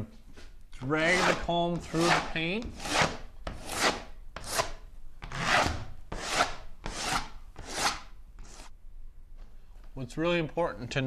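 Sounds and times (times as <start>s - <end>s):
painting tool scraping wet wall: 0.9s - 8.7s.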